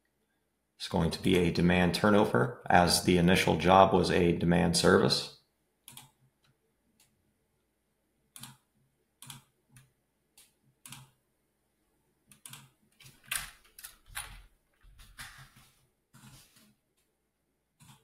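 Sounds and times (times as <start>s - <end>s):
mouse clicks: 9.2s - 11.2s
keyboard typing: 17.8s - 18.0s.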